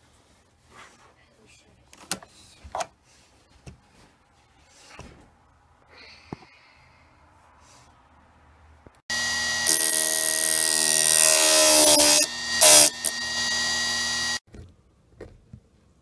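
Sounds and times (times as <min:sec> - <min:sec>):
grinding wheel whining: 0:09.1 - 0:14.4.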